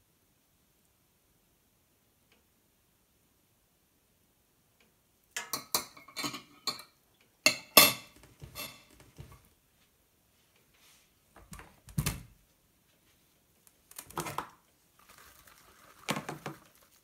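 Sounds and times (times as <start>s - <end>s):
metal spoon clinking on ceramic: 7.5s - 8.9s.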